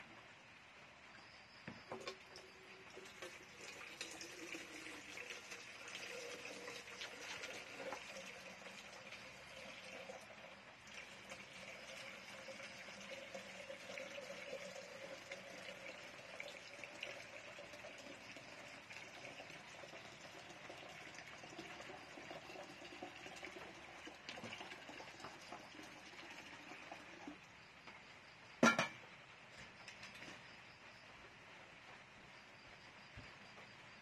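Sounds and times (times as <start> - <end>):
running water: 1.8 - 27.7.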